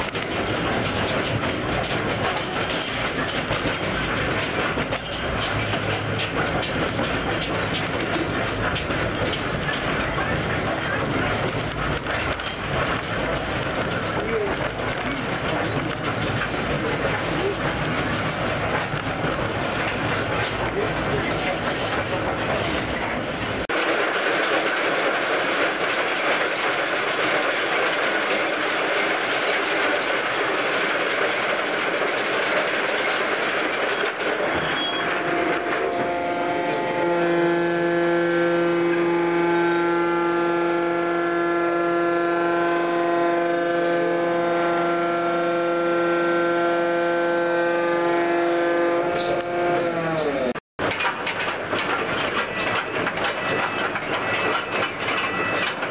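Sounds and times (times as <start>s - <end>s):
electric machine hum and whine: 35.1s - 50.5s.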